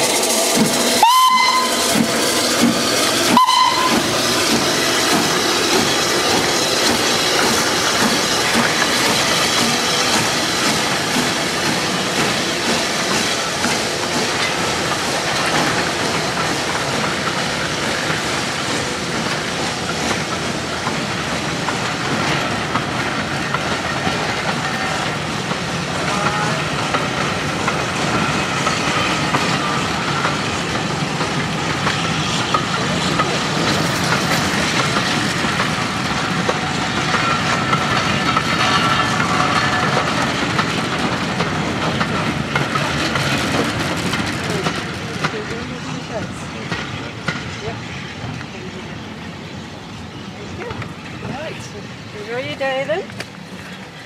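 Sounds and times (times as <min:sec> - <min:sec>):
carriages clattering on rails: 0:00.0 - 0:54.0
steam hissing: 0:00.0 - 0:54.0
steam locomotive whistle: 0:01.0 - 0:02.0, 0:03.3 - 0:04.2.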